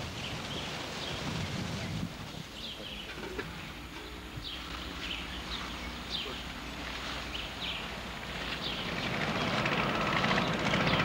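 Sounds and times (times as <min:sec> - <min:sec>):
engine with rapid pulse: 0:07.6 - 0:11.0.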